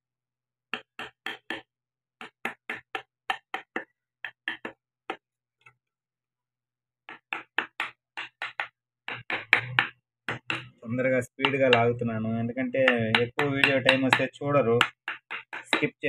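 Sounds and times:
chisel tapping into wood: 7.1s - 10.8s, 12.8s - 16.0s.

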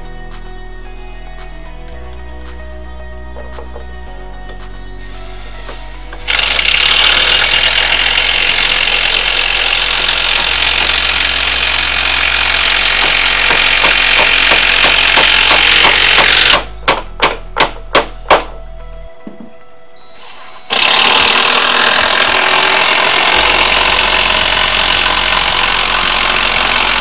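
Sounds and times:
handheld power tool running: 6.2s - 16.8s, 20.7s - 27.0s.

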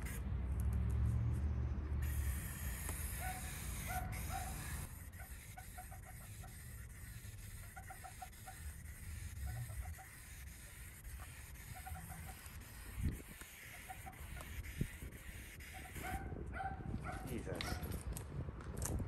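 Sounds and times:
spray paint can hissing: 0.0s - 0.2s, 2.0s - 16.2s.

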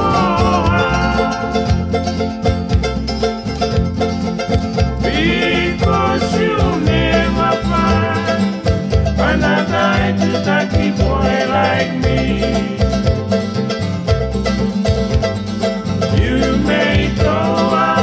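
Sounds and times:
gliding melody line: 0.0s - 14.7s
acoustic guitar: 0.0s - 18.0s
plucked ukuleles: 0.0s - 18.0s
steady bass: 0.0s - 18.0s.

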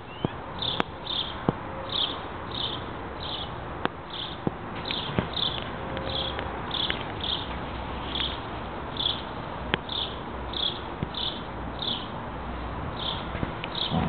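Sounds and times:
insect chirping: 9.0s - 9.3s.

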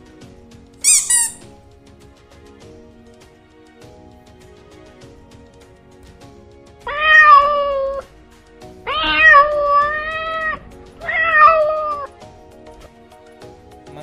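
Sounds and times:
cat meowing: 0.8s - 1.4s, 6.9s - 8.1s, 8.8s - 12.2s.

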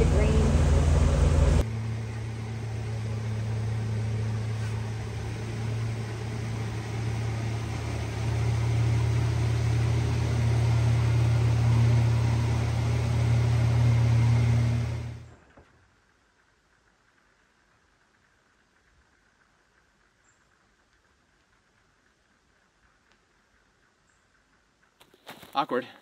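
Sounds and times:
boat motor humming: 0.0s - 15.4s.

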